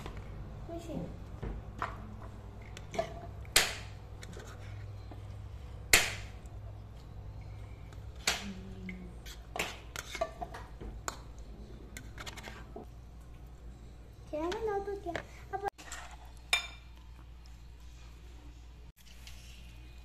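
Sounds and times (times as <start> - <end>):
low steady hum: 0.0 - 20.0
dishes and cutlery clinking: 2.6 - 3.4, 9.3 - 11.3, 15.8 - 17.0.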